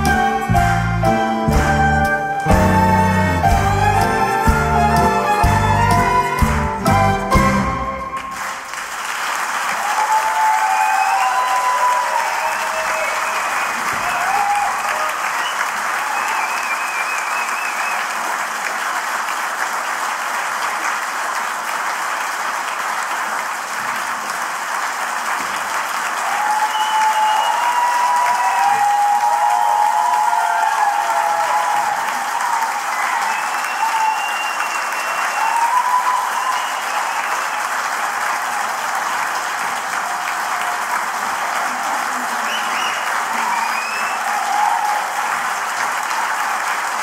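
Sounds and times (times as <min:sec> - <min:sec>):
orchestra final note: 0:00.0 - 0:08.6
audience applauding: 0:00.0 - 0:47.0
people whooping: 0:09.7 - 0:18.2, 0:26.2 - 0:39.2, 0:39.8 - 0:46.8.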